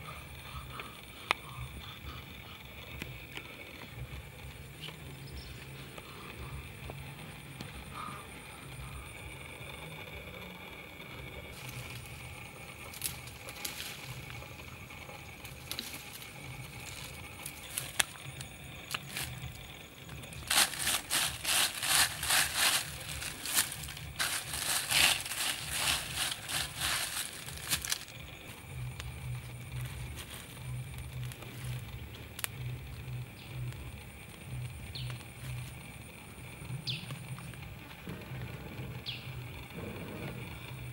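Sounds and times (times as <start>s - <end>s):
dry leaves crunching: 20.3s - 28.2s.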